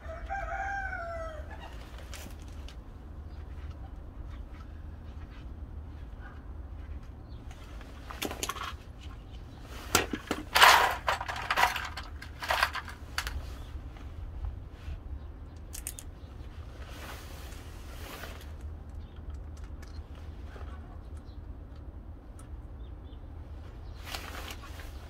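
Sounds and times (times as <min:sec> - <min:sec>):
steady low hum: 0:00.0 - 0:25.0
hard objects clattering and scraping: 0:08.2 - 0:13.7.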